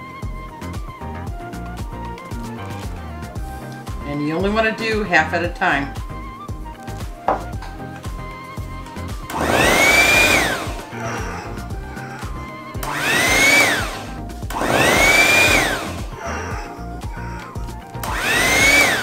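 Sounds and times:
electric mixer motor whining: 5.9s - 19.0s.

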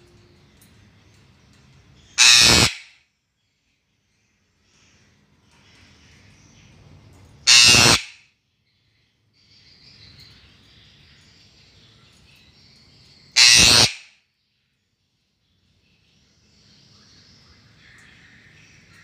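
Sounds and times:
parrot screeching: 2.2s - 3.0s, 7.4s - 8.1s, 13.4s - 14.1s.

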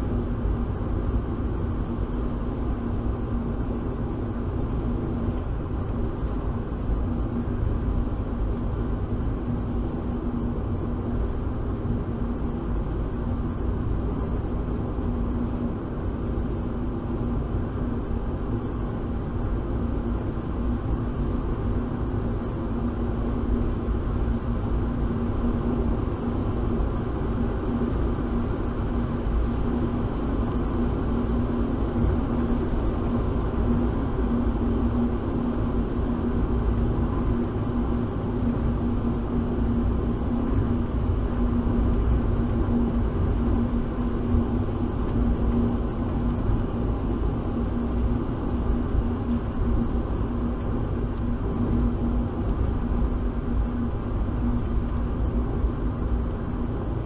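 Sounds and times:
car engine and road rumble: 0.0s - 57.0s
faint ticks: 7.9s - 8.7s, 32.0s - 32.3s, 41.4s - 43.7s, 44.3s - 46.8s.

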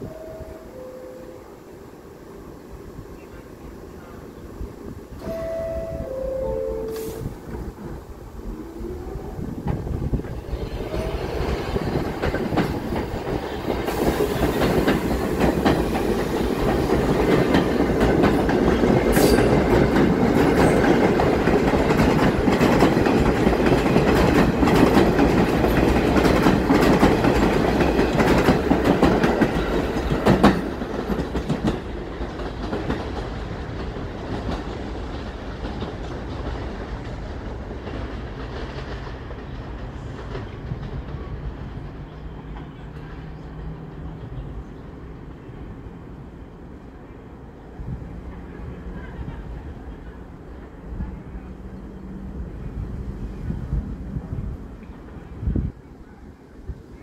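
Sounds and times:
subway train wheels clacking: 2.8s - 57.0s.

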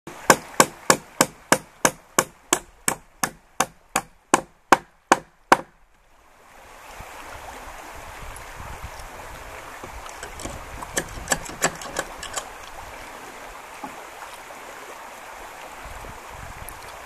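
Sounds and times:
hammer nailing wooden board: 0.3s - 5.7s, 10.3s - 12.4s.

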